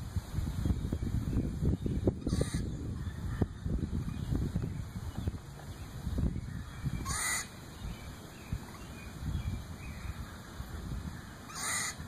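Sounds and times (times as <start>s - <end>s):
squirrel alarm calls: 1.0s - 12.0s.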